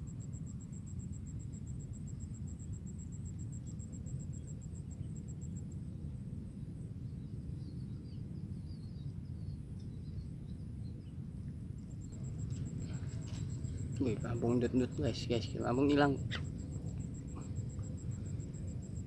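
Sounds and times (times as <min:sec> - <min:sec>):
insect trill: 0:00.0 - 0:19.0
steady low rumble: 0:00.0 - 0:19.0.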